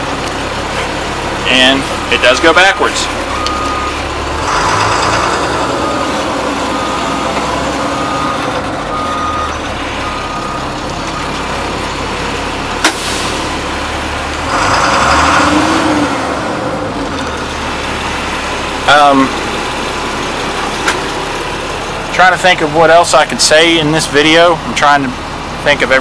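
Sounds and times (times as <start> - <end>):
diesel engine running: 0.0 - 26.0
backup alarm beeping: 3.2 - 4.2, 5.1 - 11.5.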